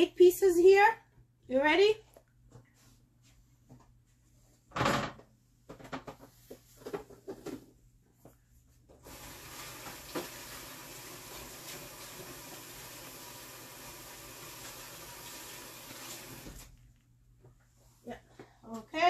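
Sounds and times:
tap water running into sink: 8.9s - 16.8s.

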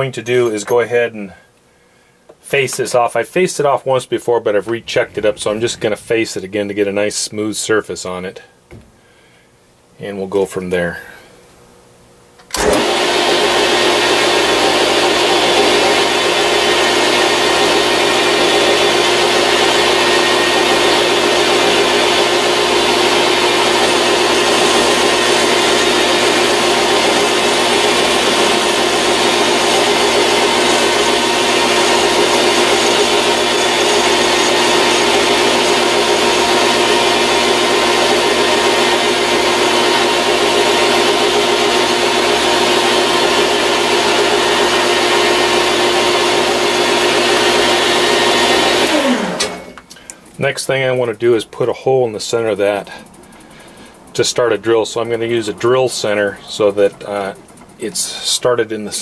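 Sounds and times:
metal lathe whining: 12.6s - 49.7s, 50.3s - 58.6s.

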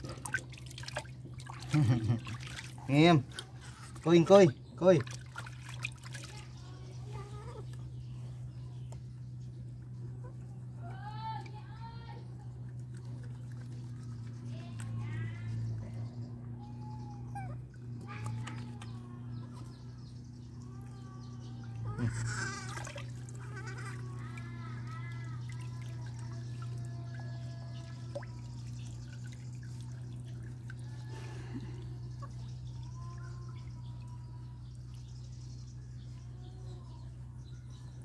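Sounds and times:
water splashing in a tub: 0.0s - 7.2s, 17.9s - 35.3s
steady low hum: 0.0s - 38.0s
baby monkeys squeaking and cooing: 6.4s - 8.3s, 15.4s - 28.6s.

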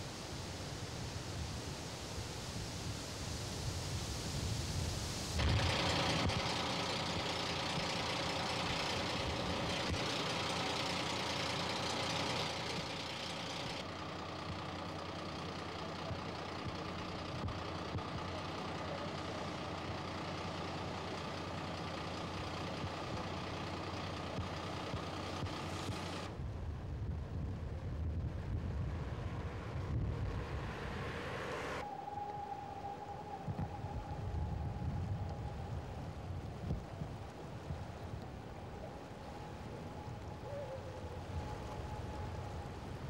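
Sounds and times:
high hiss: 0.0s - 13.8s
engine idling: 5.4s - 26.4s, 32.6s - 43.0s.

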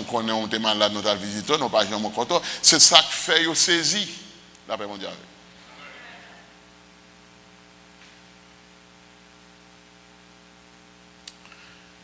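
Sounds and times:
electrical mains hum: 0.0s - 12.0s
faint click: 11.2s - 11.6s.

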